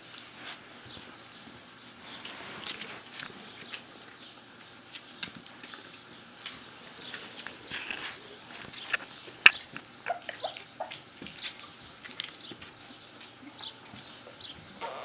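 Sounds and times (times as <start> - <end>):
puppies squeaking and whimpering: 9.6 - 11.5, 14.8 - 15.0.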